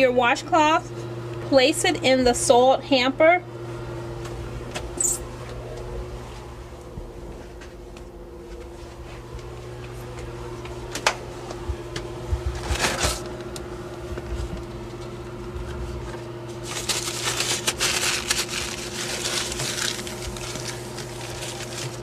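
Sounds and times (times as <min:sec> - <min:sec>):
steady low hum: 0:00.0 - 0:22.0
paper towels crumpling: 0:12.5 - 0:13.3, 0:16.5 - 0:22.0.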